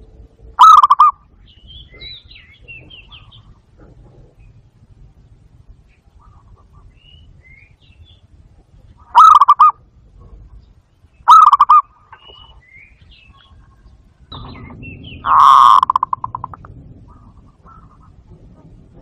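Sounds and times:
dove cooing: 0.6 - 1.2, 9.0 - 10.5, 11.3 - 12.5, 13.3 - 19.0
small birds chirping: 0.6 - 19.0.

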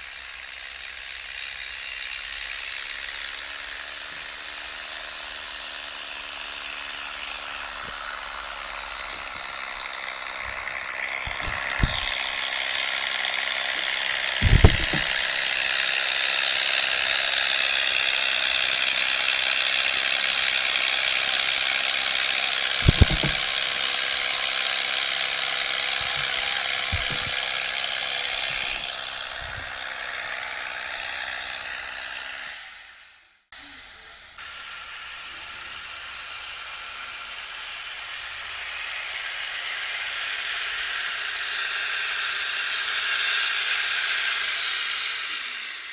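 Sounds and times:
tractor engine under load: 6.4 - 31.8
harrow discs rattling and scraping: 7.7 - 12.4, 14.4 - 15.3, 22.6 - 24.3, 25.5 - 29.8
dull thumps: 9.0 - 12.4, 14.4 - 15.3, 22.8 - 23.8, 25.8 - 29.8.

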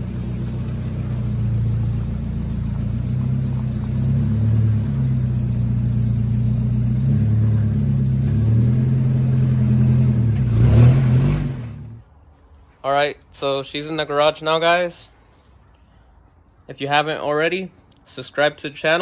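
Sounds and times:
pickup truck engine running: 0.0 - 12.0.

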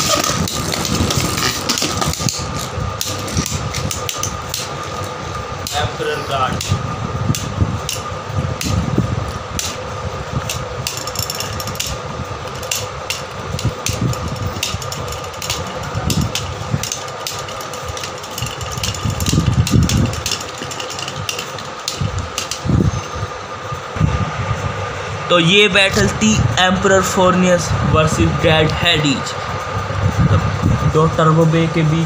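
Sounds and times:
steady hum: 0.0 - 32.0
spinning tops clicking together: 10.5 - 22.7.

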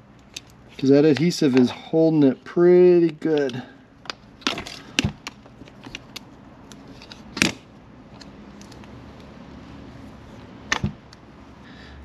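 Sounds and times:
quiet handling: 0.1 - 9.3.

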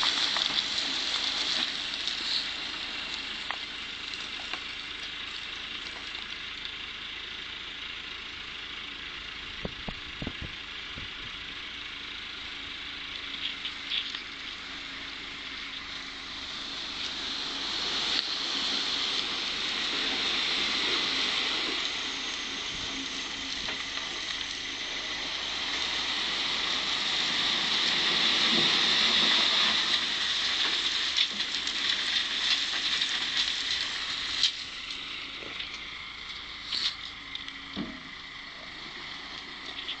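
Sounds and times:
earth and stones sliding: 0.0 - 6.1, 13.4 - 37.2.

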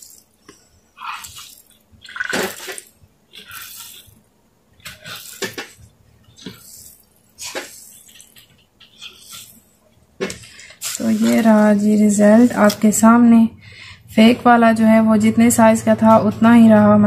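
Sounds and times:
water splashing in a bowl: 1.0 - 4.2.

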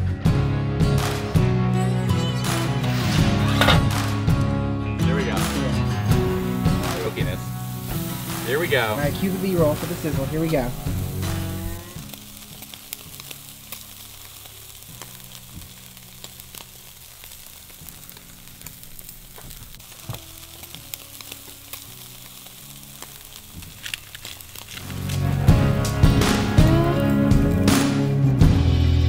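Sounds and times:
steaks sizzling on a grill: 5.1 - 28.0
pops and crackles: 6.2 - 27.9.

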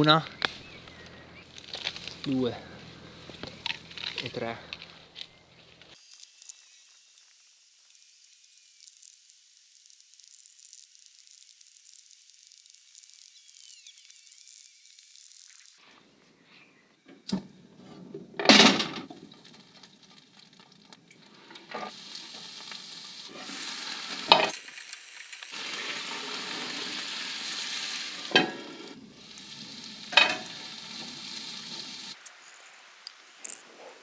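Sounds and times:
vegetables sizzling in a frying pan: 6.0 - 15.8, 21.7 - 33.1.

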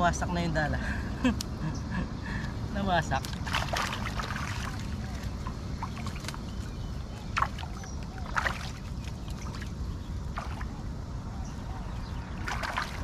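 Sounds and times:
steady low rumble: 0.0 - 13.0
fish splashing in water: 3.2 - 10.8, 12.3 - 13.0.

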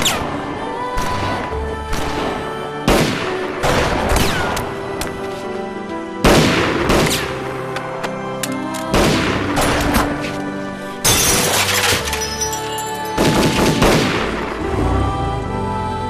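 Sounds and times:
dramatic orchestral music: 0.0 - 12.5, 13.1 - 16.0
glass shattering: 11.0 - 13.8.

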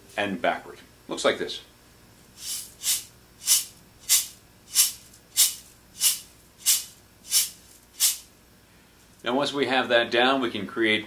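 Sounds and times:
tube shaker swishes: 2.4 - 8.3.

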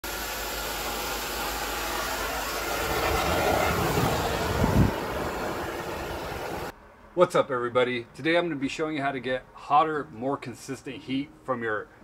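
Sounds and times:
gas burners hissing: 0.0 - 6.7
burner rumble: 0.1 - 6.7.

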